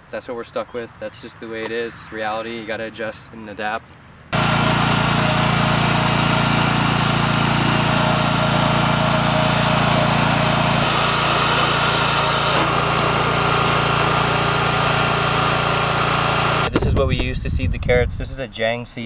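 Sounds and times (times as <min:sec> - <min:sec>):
walk-behind tractor engine running: 0:04.4 - 0:16.8.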